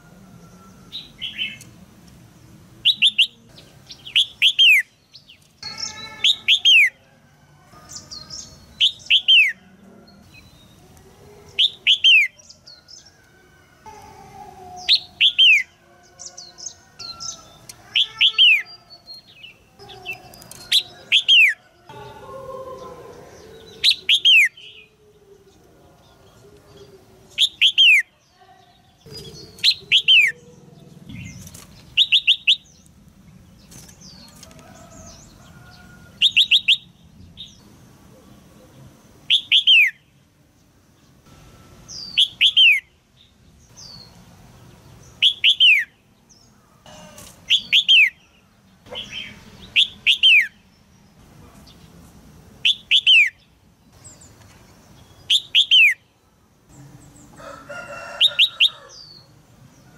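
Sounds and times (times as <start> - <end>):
bird harsh chirps: 2.8 - 7.0, 7.9 - 9.6, 14.7 - 24.9, 27.3 - 32.8, 36.2 - 37.6, 39.3 - 40.1, 41.9 - 42.9, 45.1 - 46.0, 46.9 - 50.7, 52.6 - 54.4, 55.1 - 56.1.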